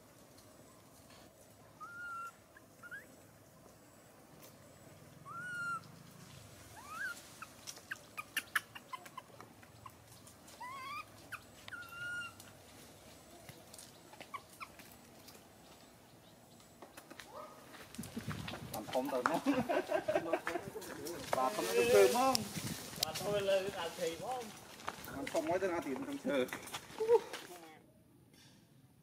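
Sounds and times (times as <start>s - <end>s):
baby monkey crying: 1.8s - 3.1s, 5.2s - 5.9s, 6.8s - 10.0s, 10.6s - 12.4s.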